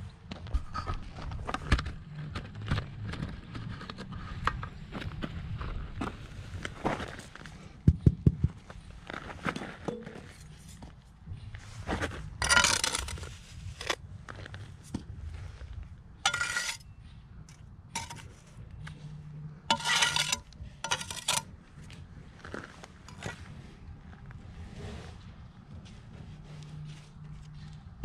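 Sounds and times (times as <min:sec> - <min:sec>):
trowel scraping and clinking on stone: 0:12.4 - 0:14.0, 0:16.3 - 0:16.9, 0:18.0 - 0:18.6, 0:19.7 - 0:21.5, 0:23.1 - 0:23.4.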